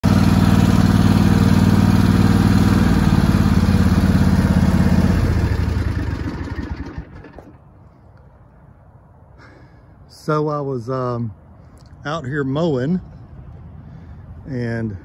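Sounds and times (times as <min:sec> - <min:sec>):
riding mower engine running: 0:00.0 - 0:07.8.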